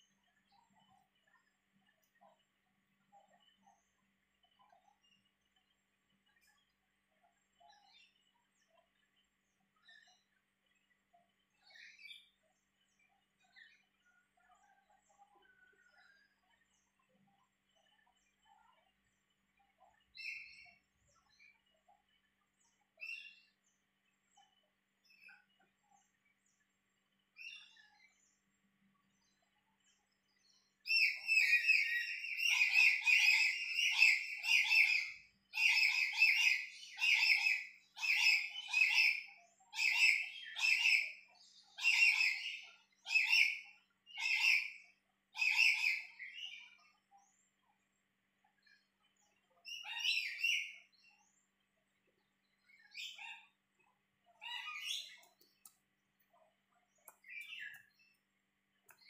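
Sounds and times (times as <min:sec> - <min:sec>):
high chirping animal calls: 0:30.9 - 0:46.6, 0:54.4 - 0:55.4.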